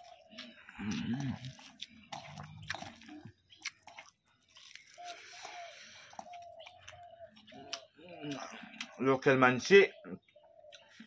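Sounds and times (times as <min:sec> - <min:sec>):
wet squishing of rice mixed by hand: 0:00.0 - 0:08.5.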